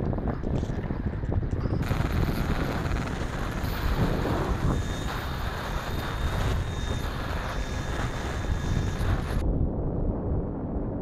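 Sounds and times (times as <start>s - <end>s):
wind buffeting microphone: 0.0s - 11.0s
faint high whine: 1.6s - 9.4s
spinning propeller: 1.6s - 9.4s.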